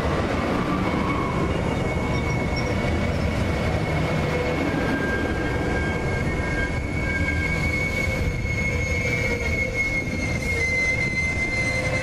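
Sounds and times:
wheels rumbling on rail: 0.0s - 12.0s
train wheels squealing: 0.6s - 12.0s.

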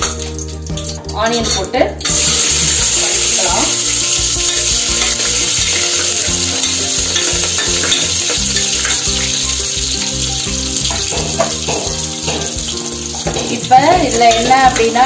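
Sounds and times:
background music: 0.0s - 15.0s
onions sizzling in hot oil: 0.0s - 15.0s
spoon stirring: 2.8s - 15.0s.

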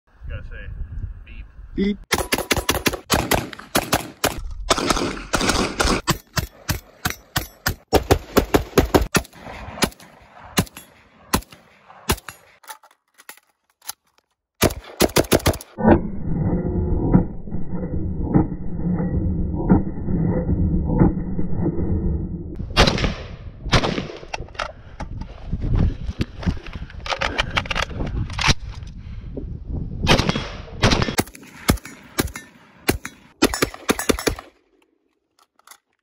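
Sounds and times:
muffled shots: 2.1s - 6.8s
rifle shots: 2.1s - 12.6s, 14.6s - 15.8s, 22.7s - 24.3s, 30.1s - 34.5s.

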